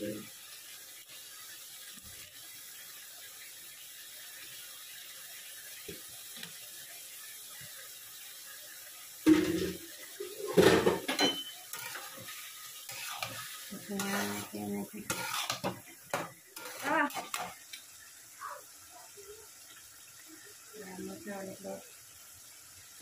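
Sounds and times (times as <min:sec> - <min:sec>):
faint steady hiss: 0:00.0 - 0:23.0
tap water running: 0:00.0 - 0:23.0
colander and dishes clattering: 0:09.3 - 0:12.3, 0:15.1 - 0:17.6
spatula scraping in a wok: 0:10.4 - 0:17.8.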